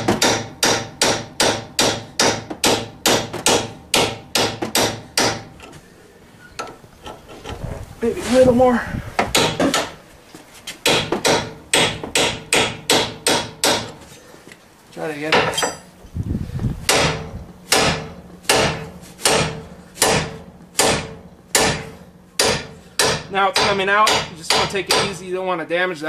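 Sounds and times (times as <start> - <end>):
hammer striking steel punch: 0.0 - 5.5, 10.8 - 14.0, 16.9 - 25.2.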